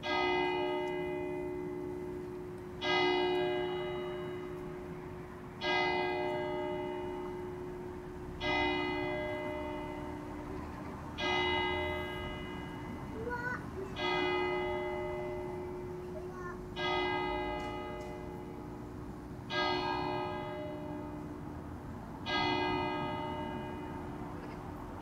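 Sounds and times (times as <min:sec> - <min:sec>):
church bell tolling: 0:00.0 - 0:25.0.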